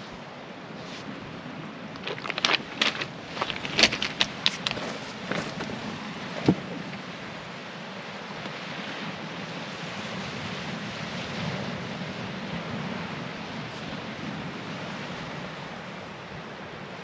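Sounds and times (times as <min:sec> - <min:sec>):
small waves washing onto pebbles: 0:00.8 - 0:13.0
wind buffeting microphone: 0:01.1 - 0:16.6.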